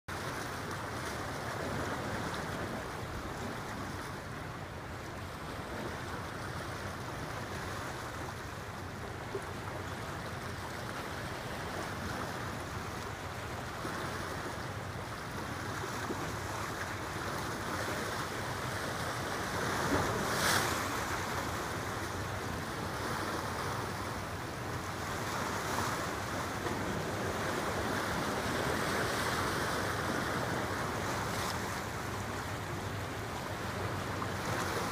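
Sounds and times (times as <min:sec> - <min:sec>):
wind: 0:00.0 - 0:34.9
moving water: 0:00.1 - 0:34.9.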